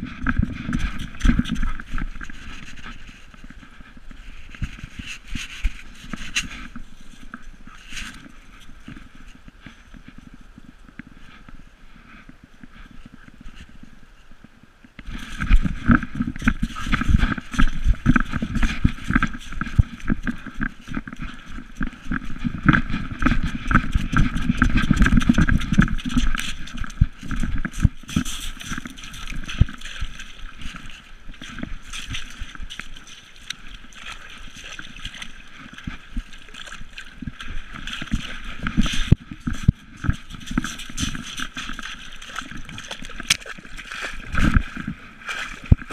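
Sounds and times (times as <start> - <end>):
camera knocking and rattling: 15.0 - 30.1.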